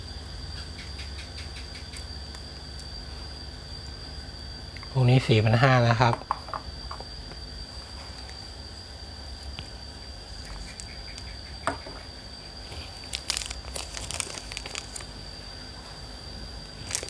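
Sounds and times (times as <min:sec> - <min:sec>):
faint high-pitched whine: 0:00.0 - 0:17.0
plastic bag crinkling: 0:12.9 - 0:15.2, 0:16.8 - 0:17.0.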